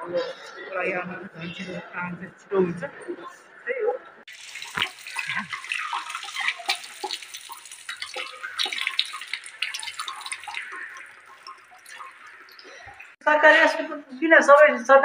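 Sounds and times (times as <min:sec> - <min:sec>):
water splashing on tiled floor: 0:04.3 - 0:13.2.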